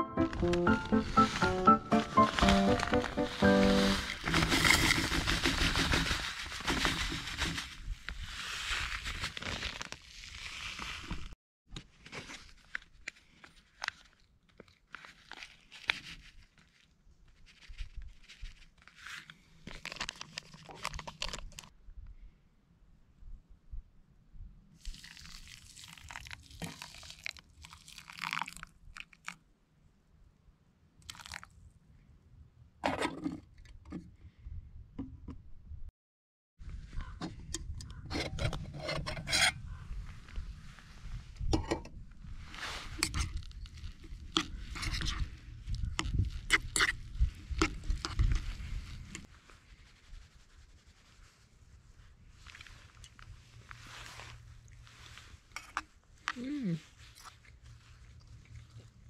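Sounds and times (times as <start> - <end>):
plastic bag rustling: 0.4 - 11.4
hot water poured onto couscous: 24.8 - 29.3.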